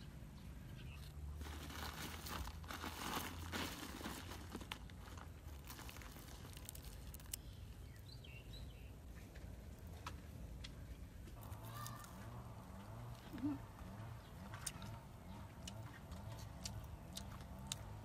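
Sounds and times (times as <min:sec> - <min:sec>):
rustling of fried crickets and leaves: 0:01.0 - 0:07.8.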